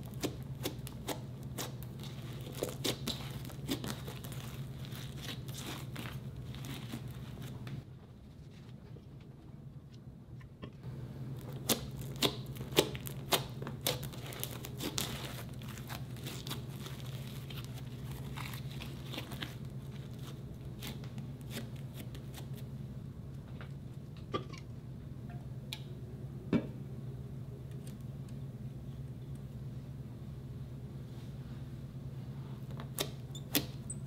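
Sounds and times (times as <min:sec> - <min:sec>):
slime popping and crackling: 0:00.0 - 0:07.1, 0:11.4 - 0:19.6
steady low hum: 0:00.0 - 0:34.0.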